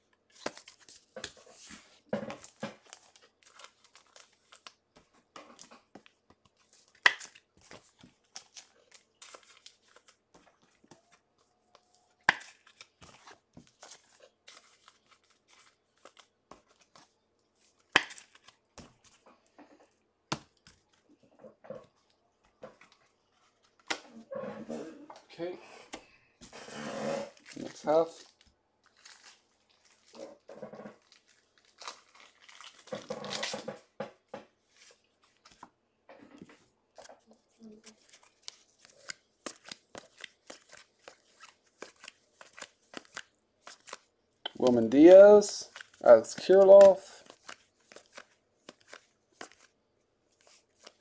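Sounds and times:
wrappers torn open and crinkled: 0:27.4 - 0:33.7.

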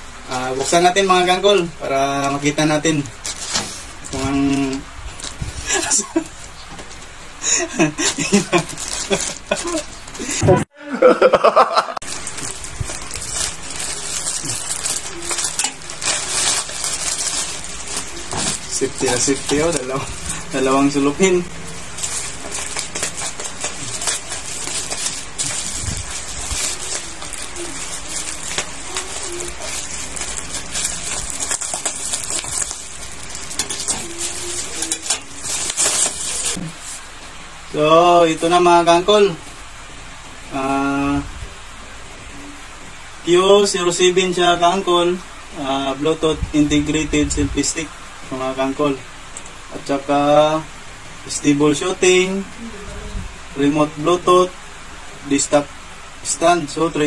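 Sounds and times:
plastic pouch crinkling: 0:03.0 - 0:06.6, 0:07.7 - 0:10.2, 0:12.0 - 0:37.0
people laughing: 0:07.5 - 0:12.0
scissors cutting plastic: 0:08.1 - 0:09.9, 0:12.2 - 0:36.7.

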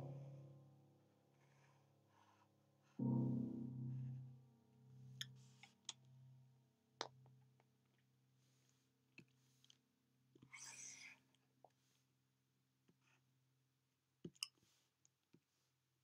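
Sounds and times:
slow quiet piano music: 0:00.0 - 0:01.7, 0:03.0 - 0:06.6.

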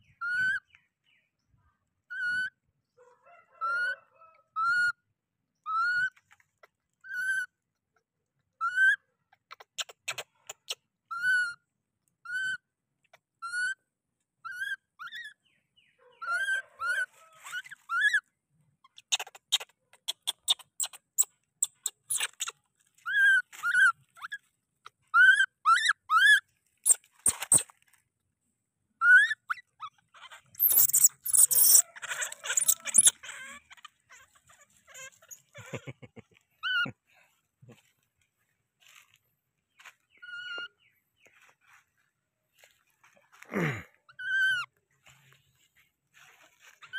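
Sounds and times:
baby monkey crying: 0:00.2 - 0:00.6, 0:02.1 - 0:02.5, 0:04.6 - 0:05.0, 0:05.7 - 0:06.1, 0:07.1 - 0:07.5, 0:08.6 - 0:09.0, 0:10.0 - 0:11.6, 0:16.2 - 0:18.2, 0:21.7 - 0:24.4, 0:25.1 - 0:27.6, 0:29.0 - 0:36.0, 0:36.6 - 0:37.0, 0:44.1 - 0:44.7.

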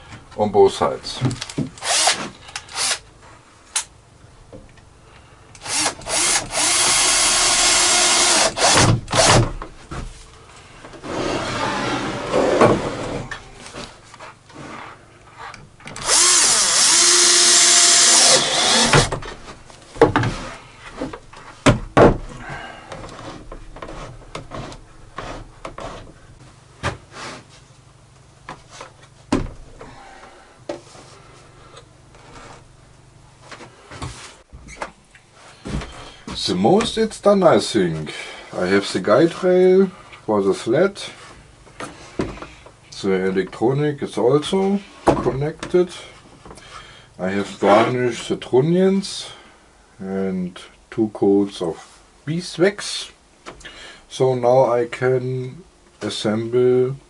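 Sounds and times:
drill driving screws into wood: 0:01.8 - 0:03.0, 0:05.6 - 0:09.5, 0:16.0 - 0:19.2.

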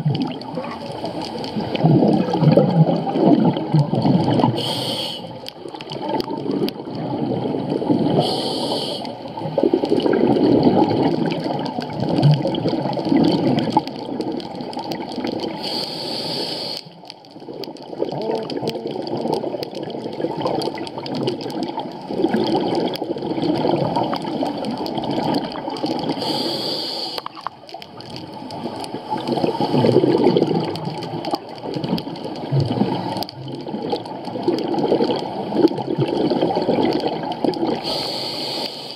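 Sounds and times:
underwater bubbles rumbling: 0:00.0 - 0:38.4
regulator hiss: 0:04.6 - 0:05.4, 0:08.2 - 0:09.2, 0:15.6 - 0:17.0, 0:26.2 - 0:27.2, 0:37.8 - 0:38.9.

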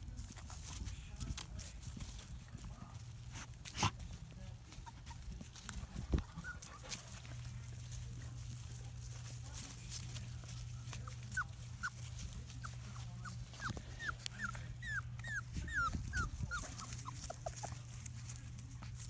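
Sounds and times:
puppies whimpering: 0:04.6 - 0:07.2, 0:10.6 - 0:18.2.

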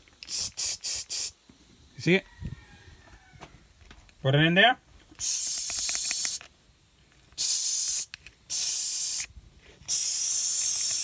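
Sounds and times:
air blow gun hissing: 0:00.0 - 0:01.5, 0:05.2 - 0:06.5, 0:07.4 - 0:11.0.

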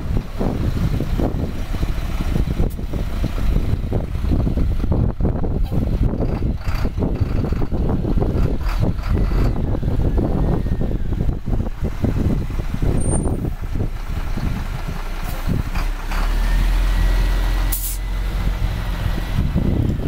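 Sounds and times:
diesel engine rumbling: 0:00.0 - 0:20.0
short hiss of air: 0:17.7 - 0:18.1.

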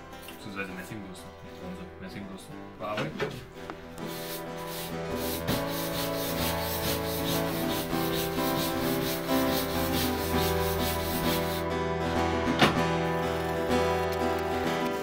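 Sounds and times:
wire brush scrubbing wood: 0:04.0 - 0:11.6, 0:13.8 - 0:15.0.

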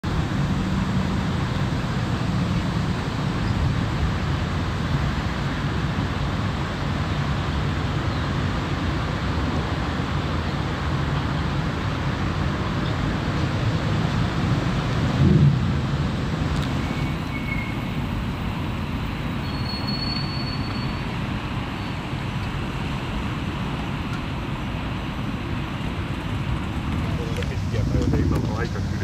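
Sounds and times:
boat engine idling: 0:23.4 - 0:29.0.

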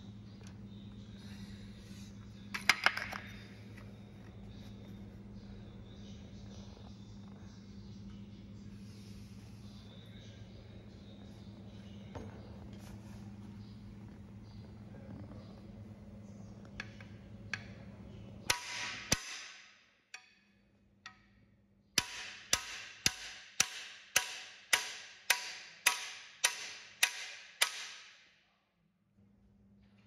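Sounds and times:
hammer striking metal bar: 0:18.5 - 0:20.4, 0:22.0 - 0:28.3.

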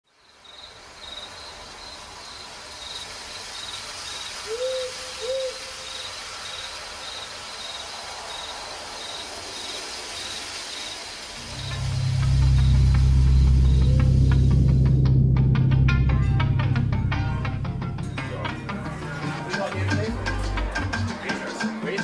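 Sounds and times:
faint steady hiss: 0:00.1 - 0:15.0
crickets chirping: 0:00.1 - 0:15.9
owl hooting: 0:04.4 - 0:06.1.

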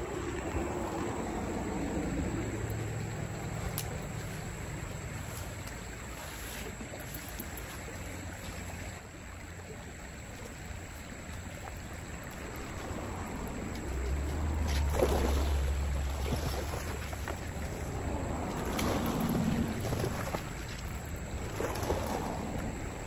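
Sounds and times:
creek water running: 0:00.0 - 0:23.0
wind buffeting microphone: 0:11.1 - 0:23.0.

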